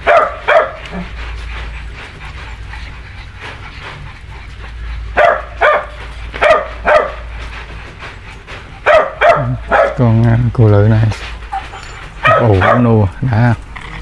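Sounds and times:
dog barking: 0:00.0 - 0:01.1, 0:05.1 - 0:07.3, 0:08.8 - 0:10.0, 0:11.5 - 0:13.0.

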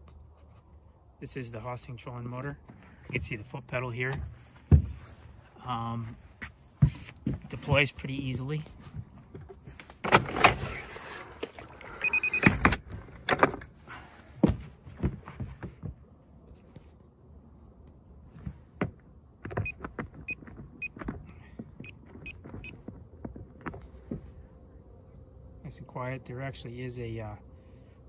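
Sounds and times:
short beeps: 0:12.0 - 0:12.5.

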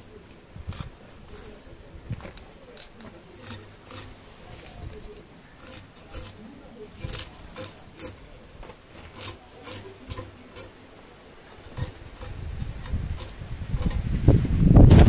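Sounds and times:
handling noise: 0:00.0 - 0:15.0
fish scales scraped on blade: 0:02.3 - 0:08.4, 0:09.0 - 0:10.8, 0:11.6 - 0:14.2.

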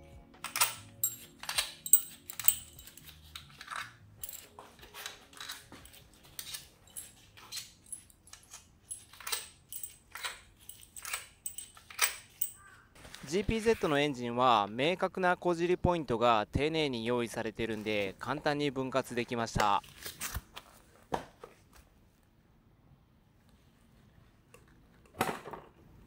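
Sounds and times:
metal bolts clinking: 0:00.4 - 0:12.8.

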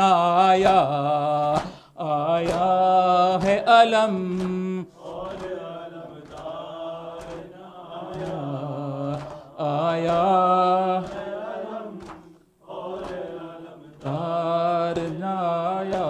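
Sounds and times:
man chanting a lament: 0:00.0 - 0:12.0, 0:13.5 - 0:16.0.

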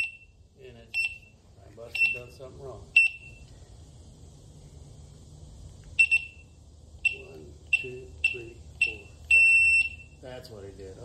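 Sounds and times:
short high beeps: 0:01.9 - 0:02.4, 0:03.0 - 0:03.4, 0:06.0 - 0:06.5, 0:07.1 - 0:10.2.

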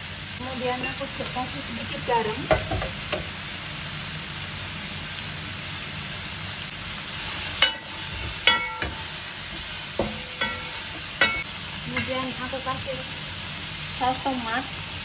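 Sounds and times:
food sizzling in oil: 0:00.0 - 0:15.0
wooden spatula knocking on pan: 0:02.4 - 0:03.3, 0:07.6 - 0:12.2.

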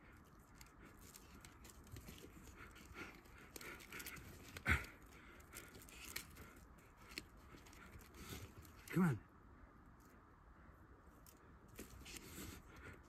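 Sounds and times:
animal scuffling and rustling: 0:00.0 - 0:08.9, 0:11.1 - 0:13.0.

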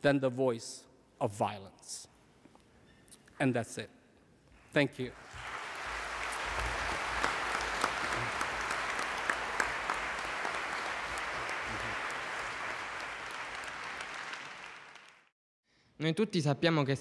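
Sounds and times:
audience clapping: 0:04.6 - 0:15.3.

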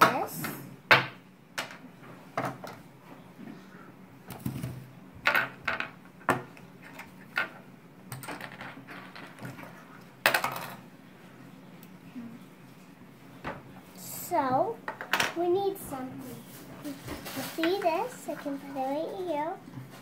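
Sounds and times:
plastic toy pieces on wooden table: 0:05.3 - 0:10.8.

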